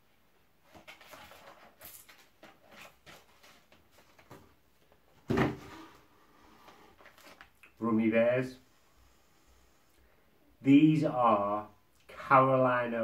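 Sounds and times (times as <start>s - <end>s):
cardboard packaging rustling: 0.6s - 7.6s.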